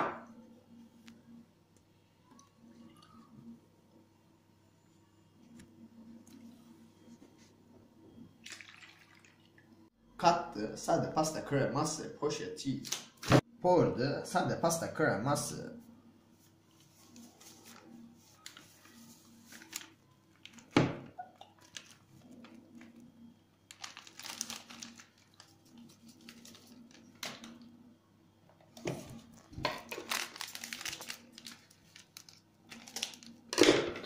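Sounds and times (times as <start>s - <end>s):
plastic sachets crinkling: 17.1s - 20.7s, 21.4s - 27.7s, 29.4s - 33.5s.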